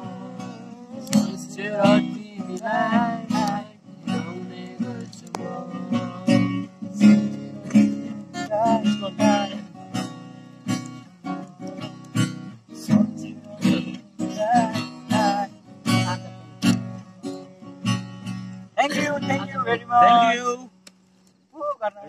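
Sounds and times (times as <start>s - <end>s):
man singing: 0.0s - 9.8s, 12.7s - 16.4s
acoustic guitar strumming: 0.0s - 21.0s.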